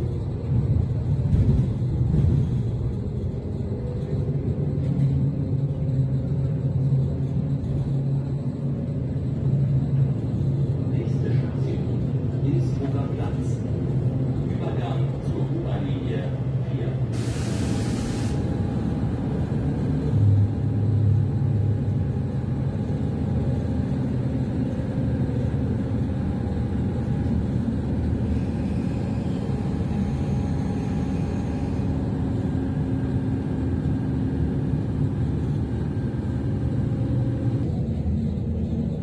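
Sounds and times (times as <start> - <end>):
train wheels rumbling on track: 0.0 - 39.0.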